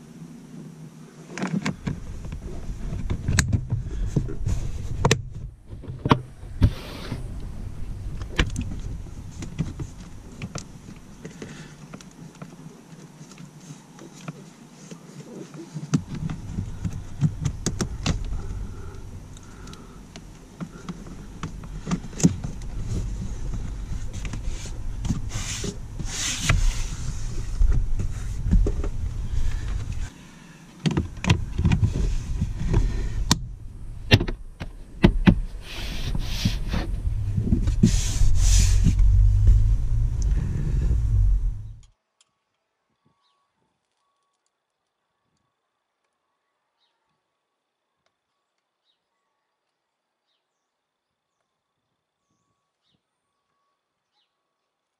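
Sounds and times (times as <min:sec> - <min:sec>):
steady low rumble: 0:01.8 - 0:11.2, 0:16.0 - 0:30.1, 0:31.0 - 0:41.9.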